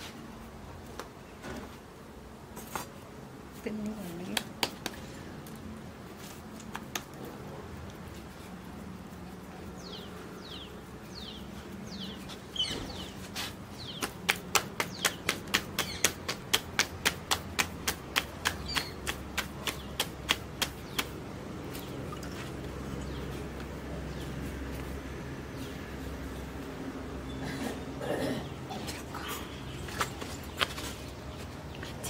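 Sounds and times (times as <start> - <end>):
dough slapped between palms: 4.4 - 5.0, 13.8 - 21.2.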